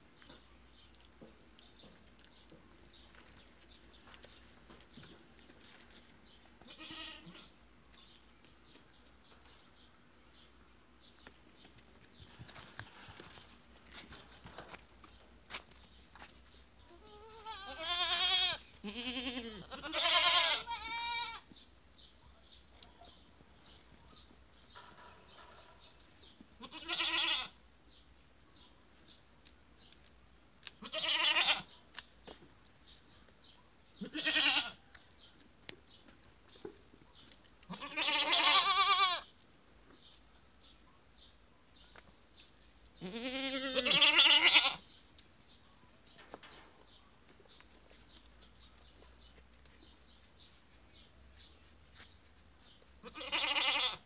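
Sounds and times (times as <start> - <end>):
goats bleating: 6.6 - 7.5, 16.9 - 21.4, 26.6 - 27.6, 30.8 - 31.7, 34.0 - 34.8, 37.7 - 39.3, 43.0 - 44.8, 53.0 - 54.0.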